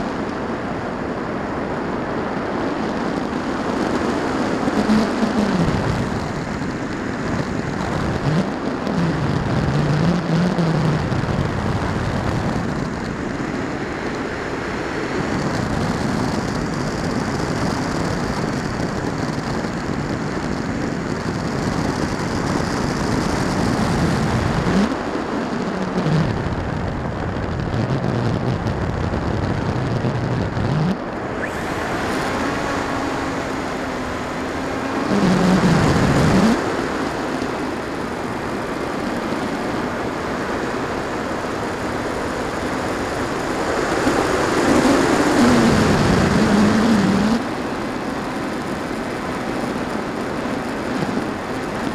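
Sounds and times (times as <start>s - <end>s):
wind rushing past camera: 0.0s - 51.9s
low hum rising and falling: 25.6s - 39.2s.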